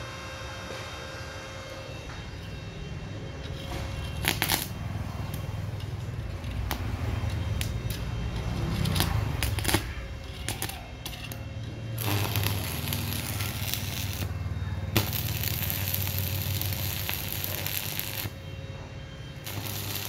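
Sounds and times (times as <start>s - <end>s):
welder low hum: 0.0s - 20.0s
welding arc crackling: 3.4s - 18.4s, 19.3s - 20.0s.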